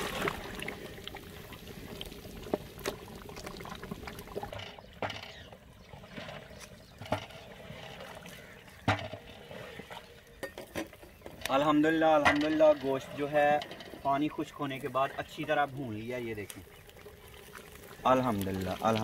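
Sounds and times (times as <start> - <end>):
meat bubbling in a pot: 0.0 - 6.0, 14.0 - 19.0.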